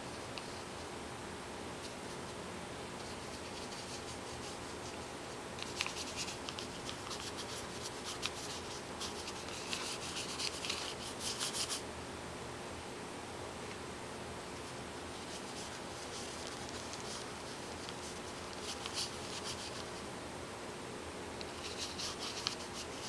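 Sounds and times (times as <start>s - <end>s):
steady low hiss: 0.0s - 23.0s
brush strokes scratching paper: 3.0s - 11.8s, 15.1s - 20.0s, 21.4s - 23.0s.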